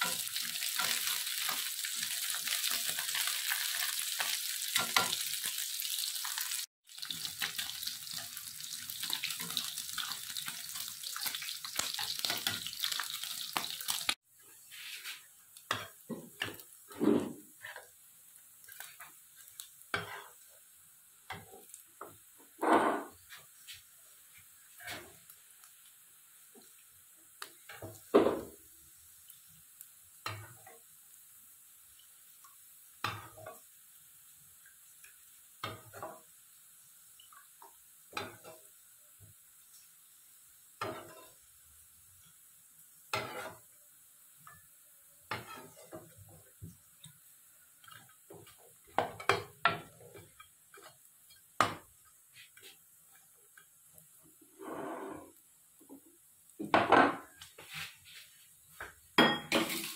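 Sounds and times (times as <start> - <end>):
water running from a tap: 0.0 - 14.2, 59.3 - 59.9
clinks of pots and dishes: 22.6 - 23.2, 47.9 - 51.8, 56.6 - 57.4, 58.8 - 59.9.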